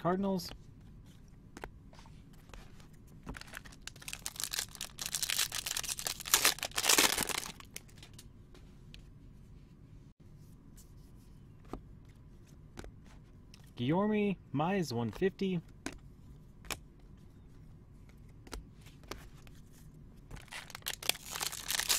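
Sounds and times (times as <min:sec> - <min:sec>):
foil pack crinkling and tearing: 0:03.4 - 0:07.8, 0:20.4 - 0:21.9.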